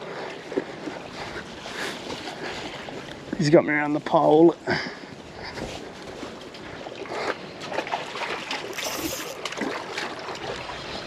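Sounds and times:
water lapping around pilings: 0.0s - 11.0s
brief hiss: 8.8s - 9.4s.

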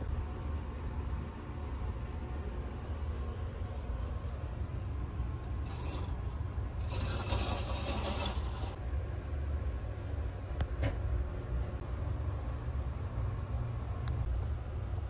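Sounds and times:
low steady train hum: 0.0s - 15.0s
curtain swishing along rail: 5.6s - 8.8s.

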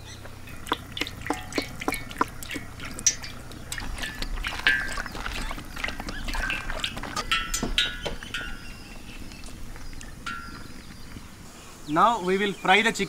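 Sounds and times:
oil glugging and splashing: 0.0s - 11.4s.

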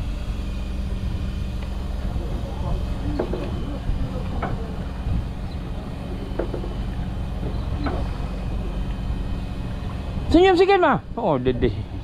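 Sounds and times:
boat engine rumbling: 0.0s - 12.0s
short knocks: 6.3s - 8.2s.

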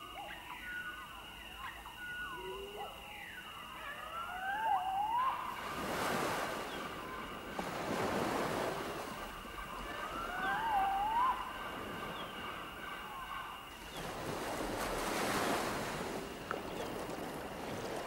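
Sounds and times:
faint steady high tone: 0.0s - 14.3s
wavering gliding calls: 0.0s - 18.0s
waves washing in: 4.5s - 18.0s.

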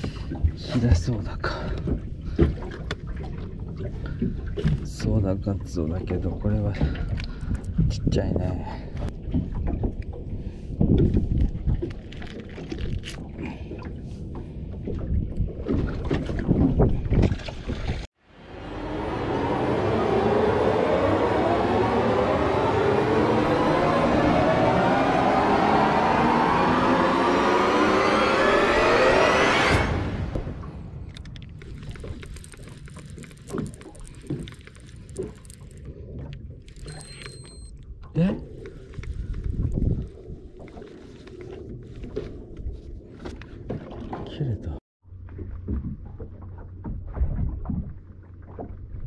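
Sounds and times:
water moving around boat: 0.0s - 27.7s, 30.1s - 49.0s
wind: 0.0s - 49.0s
wind buffeting microphone: 6.0s - 12.1s, 38.5s - 40.8s
fishing reel clicking: 36.7s - 37.7s.

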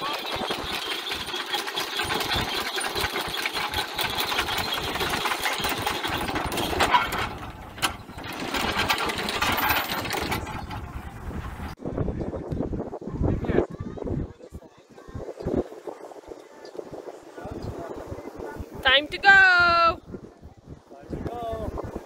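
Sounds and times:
small motor rattling: 0.0s - 11.7s.

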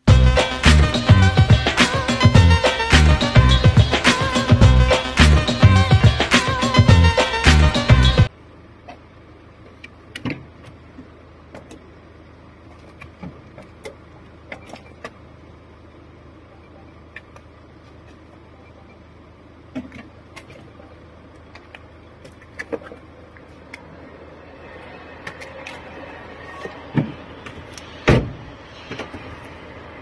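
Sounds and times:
faint steady hum: 0.8s - 30.0s
car door clicks and knocks: 10.1s - 10.8s.

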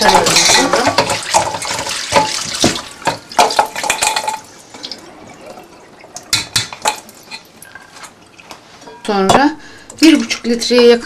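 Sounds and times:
running tap water splashing: 0.0s - 8.7s.

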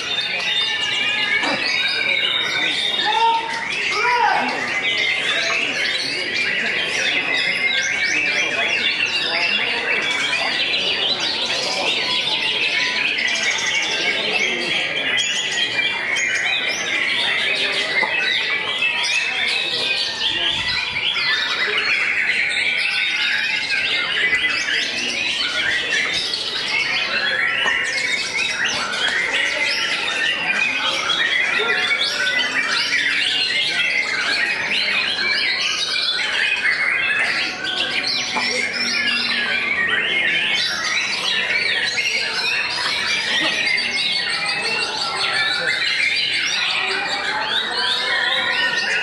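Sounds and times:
birds singing: 0.0s - 49.0s.

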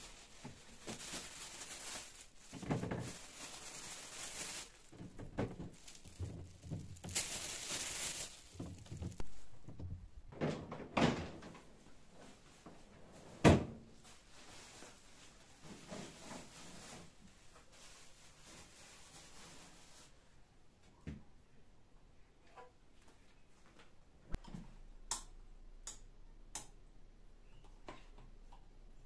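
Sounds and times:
rustling in fridge drawer: 0.0s - 9.7s.

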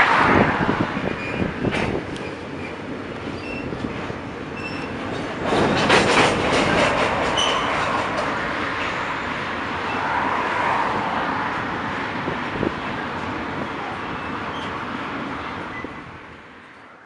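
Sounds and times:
train rumble: 0.0s - 17.0s
train wheels clacking: 1.6s - 9.0s
short high squeaks: 7.4s - 7.8s.

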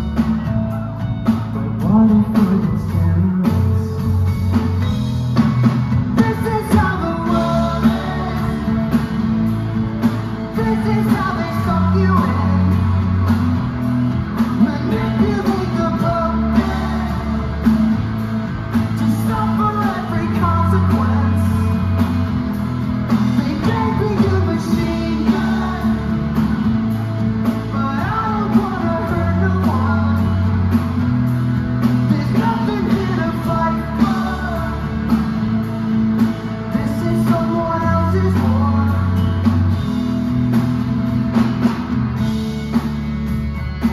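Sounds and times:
bass guitar: 0.0s - 43.9s
distorted electric guitars: 0.0s - 43.9s
drum kit beat: 0.0s - 43.9s
lead vocal singing: 6.0s - 39.8s.

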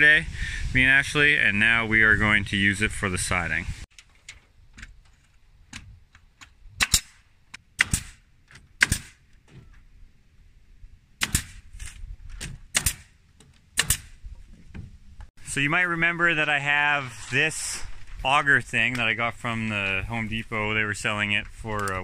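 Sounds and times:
pneumatic nail gun shots: 6.8s - 7.2s, 7.8s - 8.2s, 8.8s - 9.2s, 11.2s - 11.6s, 12.4s - 13.2s, 13.8s - 14.2s.

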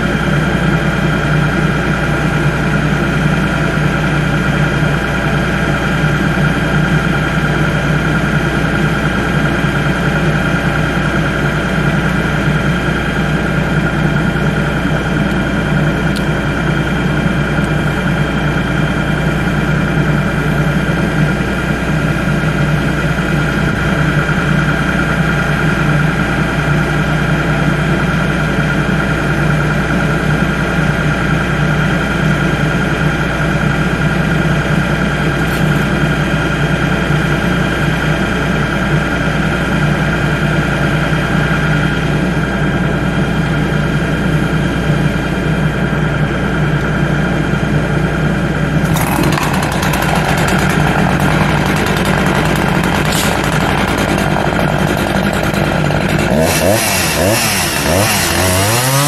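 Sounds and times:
tractor engine idling: 0.0s - 59.0s.

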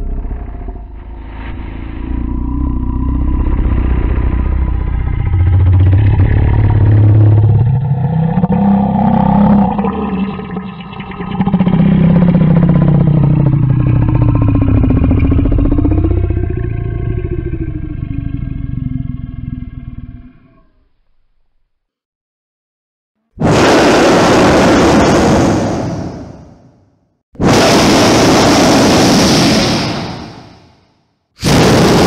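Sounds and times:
deep monster growl: 0.0s - 21.0s, 31.4s - 32.0s.

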